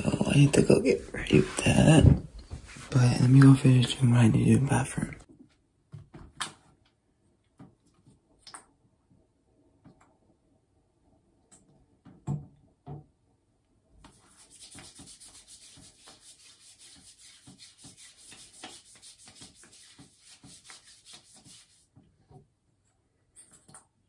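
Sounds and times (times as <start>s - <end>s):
hands rubbing lotion on skin: 14.0s - 22.0s.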